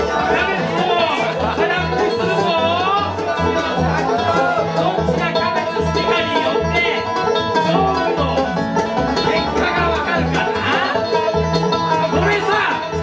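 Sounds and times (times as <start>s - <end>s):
banjo picking: 0.0s - 13.0s
bass line: 0.0s - 13.0s
guitar: 0.0s - 13.0s.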